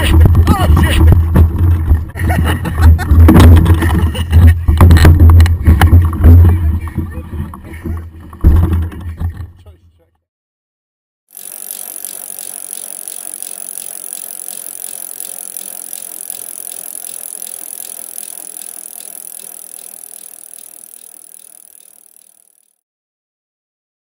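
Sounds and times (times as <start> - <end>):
bike freehub ticking: 11.3 - 22.7.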